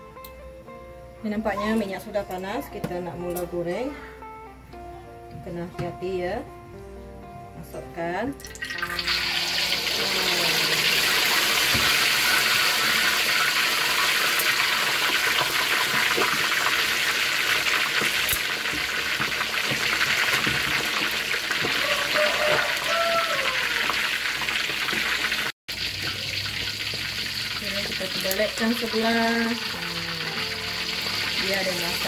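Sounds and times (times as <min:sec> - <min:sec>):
meat sizzling in hot oil: 0:08.4 - 0:32.0.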